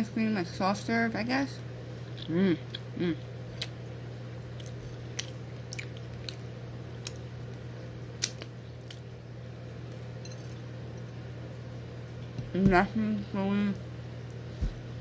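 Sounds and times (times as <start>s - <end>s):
steady low hum: 0.0s - 15.0s
chewing: 4.5s - 7.3s
lip smacks and clicks: 8.2s - 9.1s.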